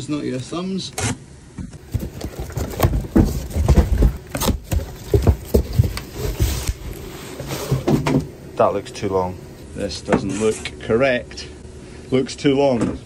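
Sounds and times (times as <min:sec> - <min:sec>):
bubble wrap rustling: 0:01.8 - 0:07.7
cardboard box scraping and rustling: 0:01.8 - 0:08.1.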